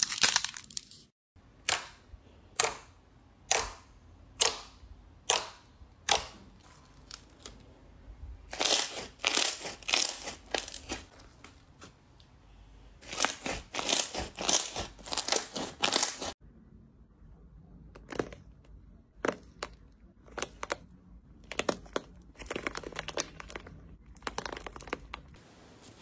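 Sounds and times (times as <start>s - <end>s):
slime crackling and squelching: 0.0s - 1.1s, 8.4s - 12.2s, 13.0s - 16.4s, 18.0s - 26.0s.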